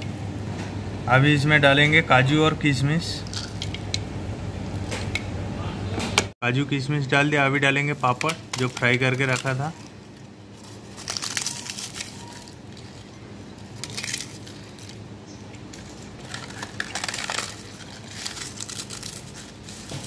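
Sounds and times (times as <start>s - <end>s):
crisp papad crunching: 9.2s - 15.0s, 15.8s - 20.0s.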